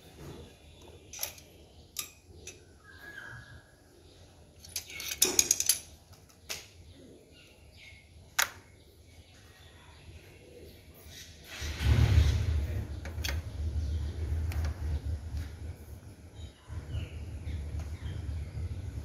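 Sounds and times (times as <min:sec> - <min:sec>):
metal tools clinking: 0:01.1 - 0:02.6, 0:04.6 - 0:06.0.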